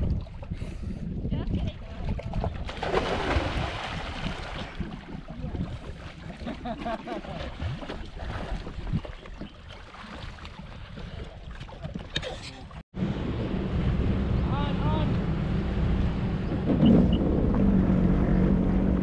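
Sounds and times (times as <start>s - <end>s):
wind rumbling on microphone: 0.0s - 12.2s, 13.0s - 19.0s
water splashing around swimmer: 1.8s - 12.8s.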